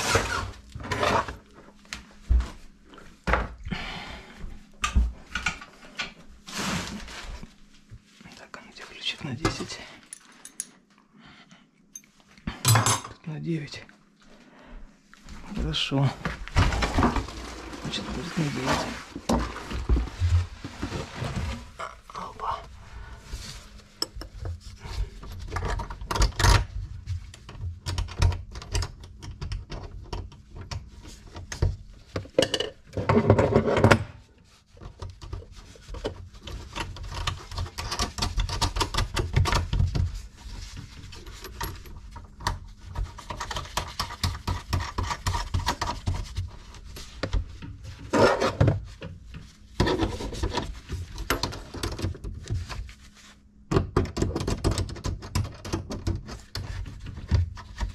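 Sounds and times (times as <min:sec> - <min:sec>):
metal tools clinking: 0:10.0 - 0:10.8.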